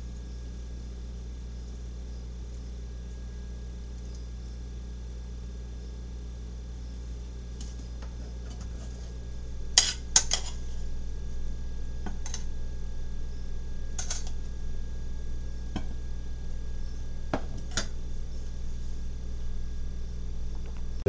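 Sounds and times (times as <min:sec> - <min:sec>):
low steady hum: 0:00.0 - 0:21.0
metal utensil clinking on pot: 0:09.8 - 0:10.6, 0:14.0 - 0:14.4.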